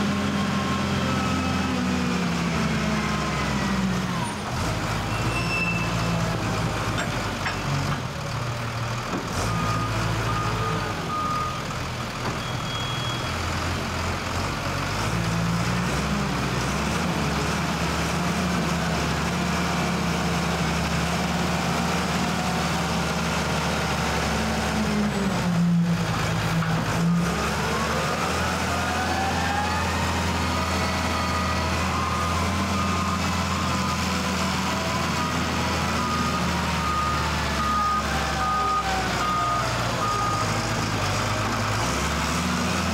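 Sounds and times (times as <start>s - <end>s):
wheel loader diesel engine: 0.0s - 42.9s
reversing alarm beeping: 12.3s - 13.3s, 28.8s - 40.7s.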